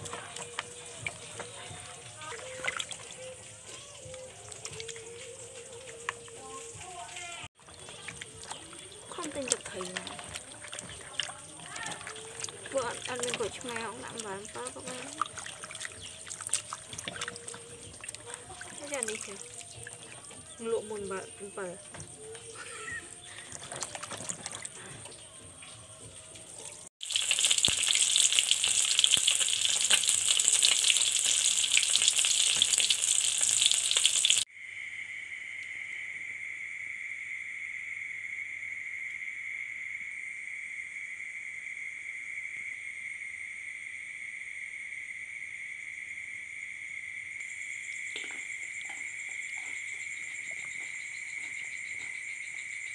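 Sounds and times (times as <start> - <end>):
fish frying in oil: 0.0 - 21.7, 26.8 - 34.5
insects chirring: 0.0 - 52.9
hands swishing vegetables in water: 4.1 - 20.2.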